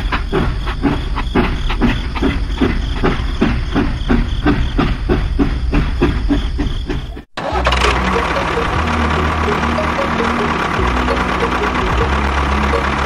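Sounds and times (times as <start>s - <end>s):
toy locomotive chuffing: 7.4s - 13.0s
low motor hum: 7.6s - 13.0s.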